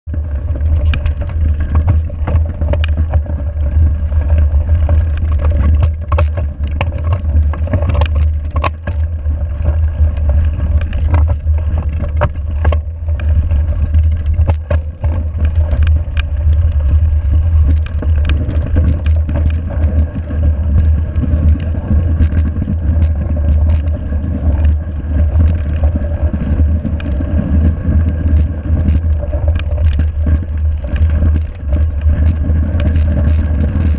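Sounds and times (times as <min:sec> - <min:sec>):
bike tyres on snowy gravel: 0:00.0 - 0:33.9
wind rumble on microphone: 0:00.0 - 0:33.9
bike clicks and rattles: 0:00.1 - 0:33.9.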